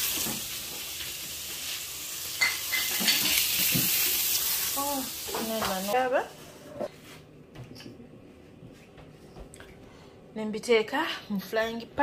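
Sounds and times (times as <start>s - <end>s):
chicken sizzling in oil: 0.0s - 6.0s.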